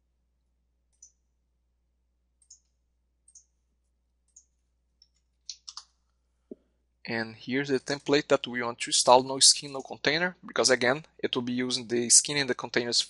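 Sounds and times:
computer mouse clicking: 0.9 - 1.2, 2.4 - 2.7, 4.3 - 6.0.

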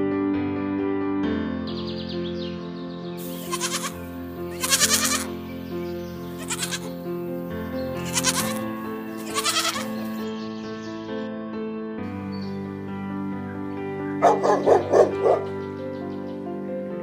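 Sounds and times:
background music: 0.0 - 17.0
goat bleating: 3.2 - 5.4, 6.2 - 7.1, 7.9 - 10.2.

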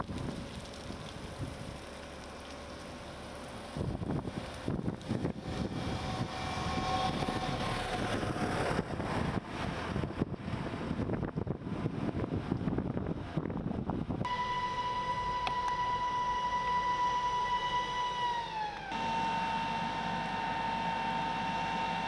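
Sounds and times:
wildfire burning and crackling: 0.0 - 14.2
steady high tone: 14.3 - 22.0.

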